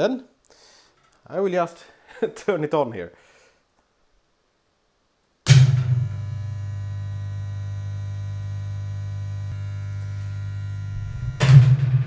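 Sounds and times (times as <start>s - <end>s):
charger power surge: 5.5s - 12.0s
loud mains hum: 8.6s - 12.0s.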